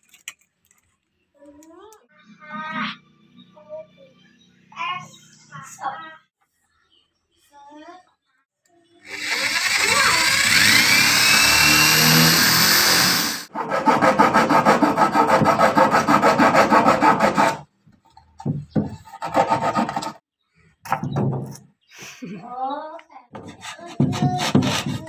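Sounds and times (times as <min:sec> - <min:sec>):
electric drill boring into wood: 0:09.1 - 0:13.5
hacksaw sawing wood: 0:09.1 - 0:17.7, 0:18.8 - 0:20.2, 0:23.3 - 0:25.0.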